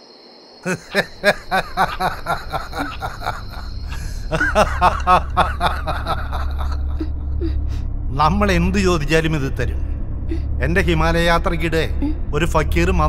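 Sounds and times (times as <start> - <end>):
person laughing rhythmically: 0.7 - 7.8
deep low hum: 1.0 - 13.0.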